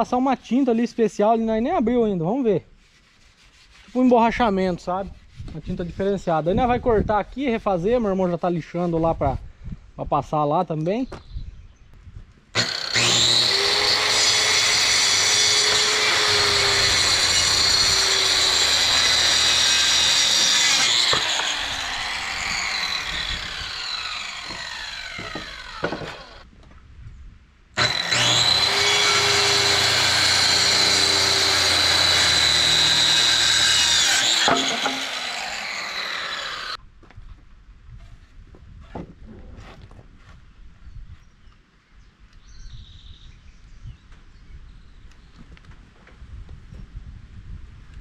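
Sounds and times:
circular saw cutting wood: 12.6s - 26.4s, 27.8s - 36.8s
saw blade spinning down: 12.6s - 26.4s, 27.8s - 36.8s.

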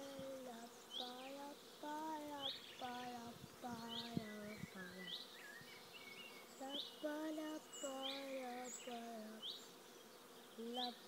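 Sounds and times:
bees buzzing past: 0.0s - 11.0s
bird chirping: 0.6s - 11.0s.

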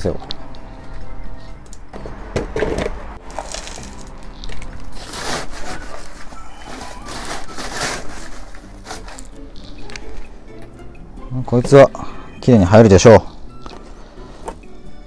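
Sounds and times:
gravel and soil rustling: 3.2s - 9.8s.

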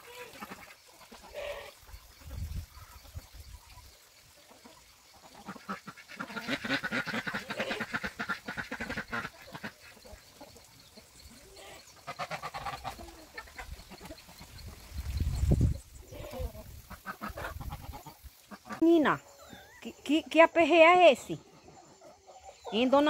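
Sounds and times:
ducks quacking: 0.0s - 3.2s, 4.4s - 15.1s, 15.9s - 20.1s.

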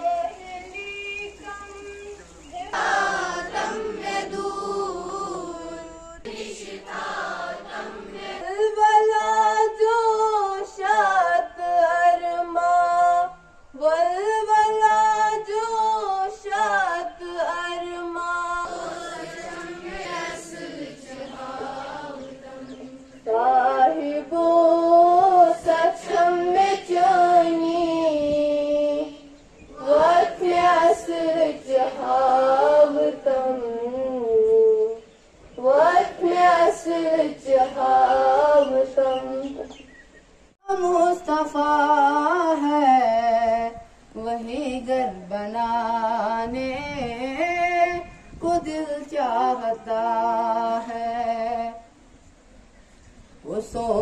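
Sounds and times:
girl singing over a loudspeaker: 8.3s - 20.6s, 22.2s - 29.3s, 40.6s - 51.9s.

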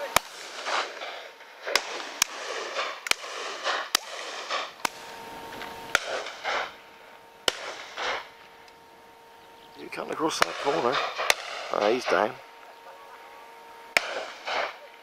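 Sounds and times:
shotgun shots: 0.0s - 5.1s, 5.9s - 6.8s, 7.4s - 8.4s, 10.2s - 12.3s, 13.9s - 14.9s
rustling hissing noise: 0.3s - 8.9s.

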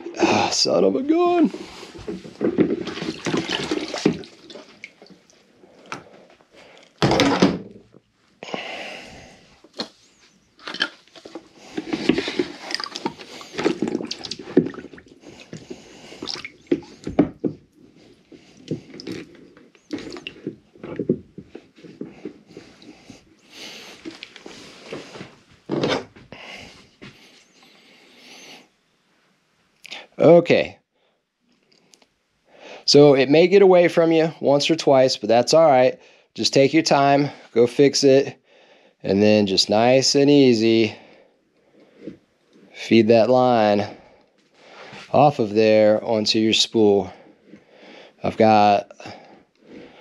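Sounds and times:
water splashing in plastic bucket: 1.6s - 6.0s, 10.6s - 17.6s, 18.4s - 21.2s
knocks in bucket: 7.0s - 7.8s.

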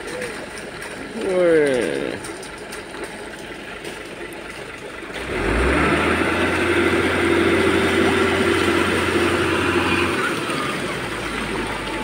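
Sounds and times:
wet concrete rushing down chute: 0.0s - 12.0s
diesel engine revving: 3.6s - 12.0s.

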